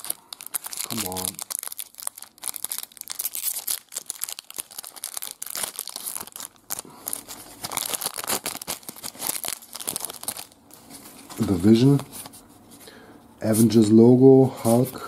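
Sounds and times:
foil wrapper crinkling and tearing: 0.0 - 12.0.

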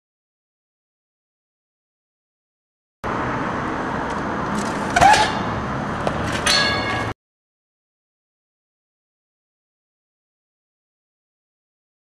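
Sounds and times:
high squeal: 4.9 - 5.5.

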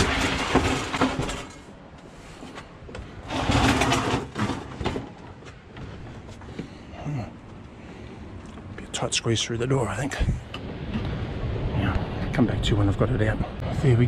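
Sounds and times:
fridge scraping as dragged: 3.2 - 5.1.

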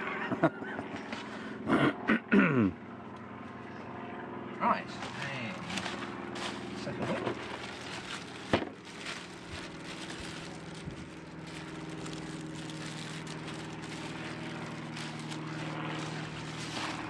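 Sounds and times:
engine drone: 0.0 - 17.0
plastic wrapping and cardboard rustling: 5.0 - 17.0.

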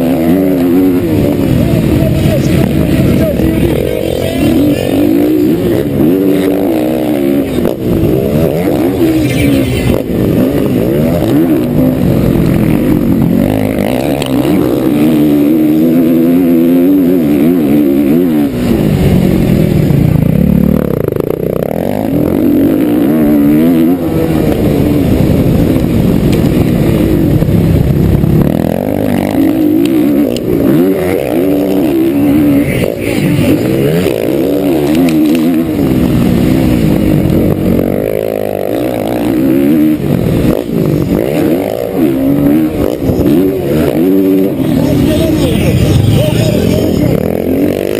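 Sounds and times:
motocross engine revving: 0.0 - 47.9.

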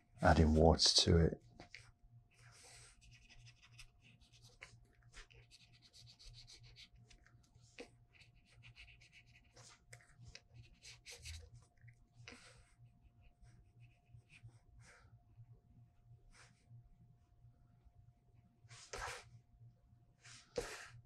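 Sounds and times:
brush pens scratching on paper: 2.9 - 7.0.

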